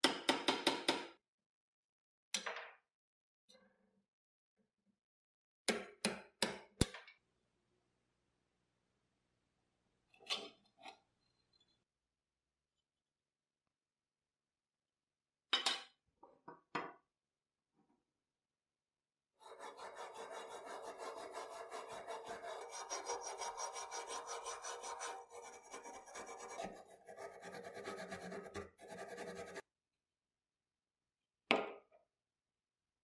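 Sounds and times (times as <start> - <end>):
wire brush scrubbing steel: 19.5 - 26.8.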